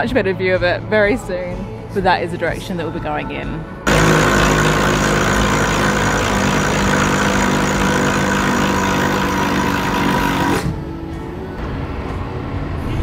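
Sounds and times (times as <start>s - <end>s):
boat engines idling: 3.9s - 10.7s.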